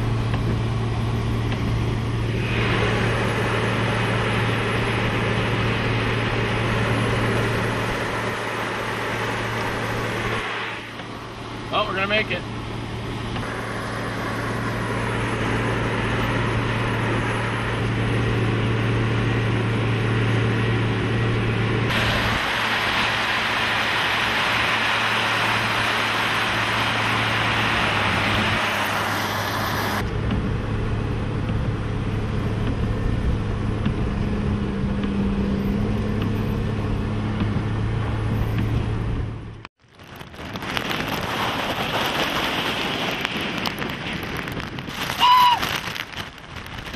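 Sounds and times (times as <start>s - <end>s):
truck engine running: 0.0s - 46.9s
loud rushing noise: 2.2s - 11.0s, 21.9s - 30.0s.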